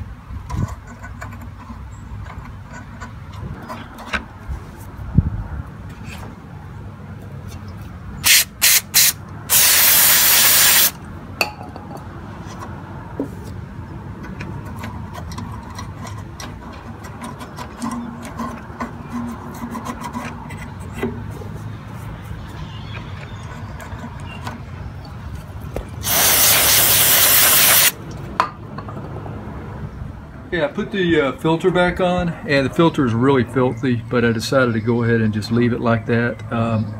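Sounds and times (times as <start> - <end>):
aerosol spray hissing: 8.3 - 10.9, 26.0 - 28.0.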